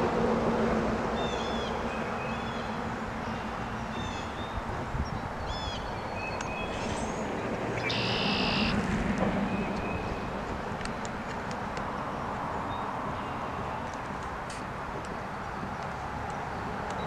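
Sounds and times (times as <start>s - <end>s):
short bird chirps: 7.8s - 8.7s.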